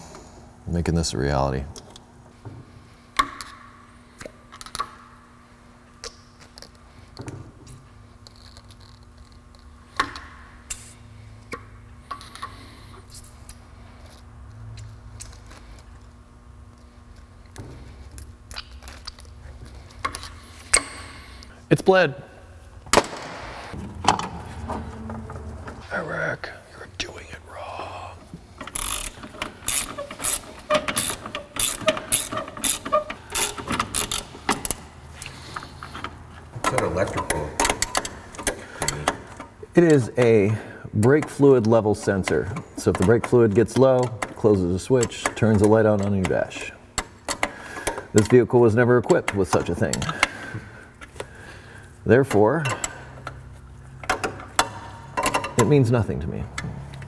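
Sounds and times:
faint steady hum: 0.0 - 57.0
wrench metallic clicks: 28.6 - 34.8.

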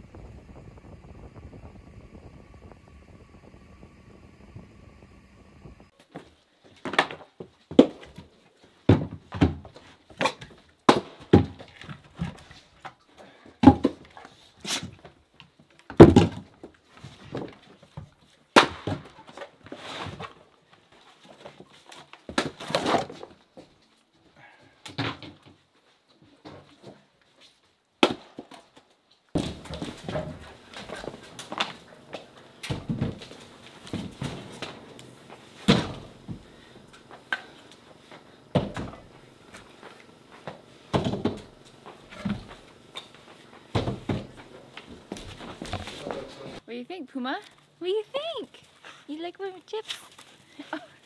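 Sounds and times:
firewood dropped on wooden deck: 8.9 - 12.5, 15.9 - 20.4, 29.4 - 46.1.

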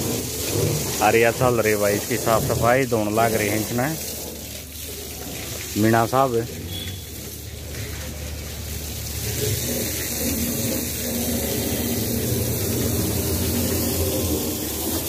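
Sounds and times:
hose water spraying and splashing: 0.0 - 15.0
low motor hum: 6.7 - 15.0.

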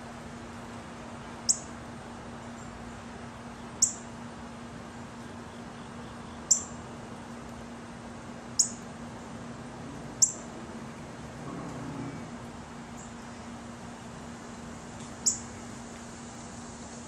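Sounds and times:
hummingbird chip notes: 1.4 - 1.7, 3.6 - 4.2, 5.5 - 6.9, 8.4 - 9.0, 10.1 - 14.1, 15.2 - 15.8.

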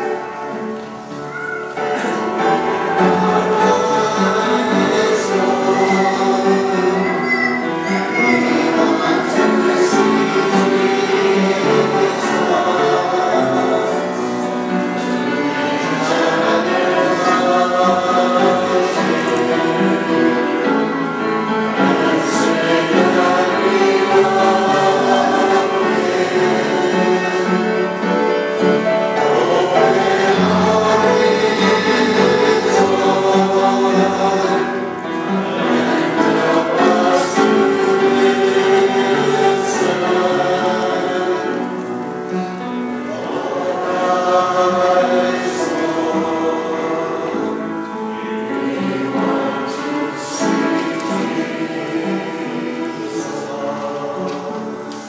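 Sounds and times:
choir singing: 0.0 - 55.0.

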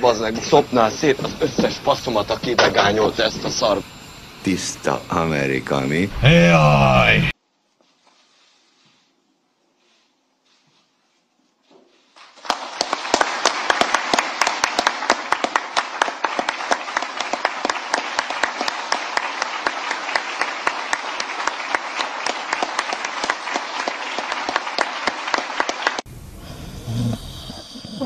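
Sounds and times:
audience applause: 12.4 - 26.1.

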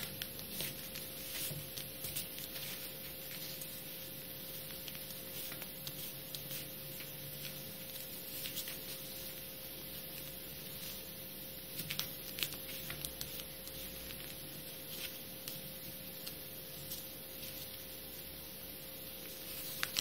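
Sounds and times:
faint steady hum: 0.0 - 20.0
paper folding and creasing: 4.5 - 9.3, 19.2 - 20.0
light paper rustles and taps: 4.6 - 9.0.

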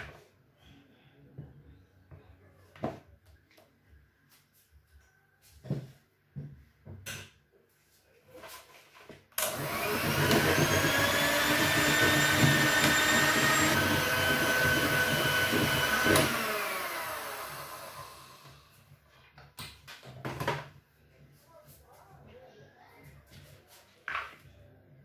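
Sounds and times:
electric hand mixer running: 9.4 - 18.8.

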